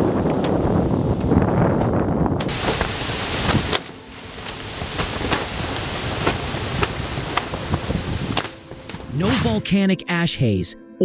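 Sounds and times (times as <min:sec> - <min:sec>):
wind buffeting microphone: 0:00.0 - 0:03.8, 0:04.6 - 0:08.4
volcanic ash eruption rushing: 0:02.5 - 0:08.4, 0:09.1 - 0:09.7.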